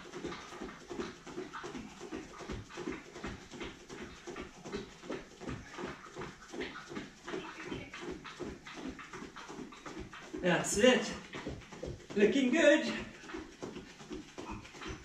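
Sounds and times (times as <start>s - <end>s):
hard panting breaths: 13.0s - 15.0s.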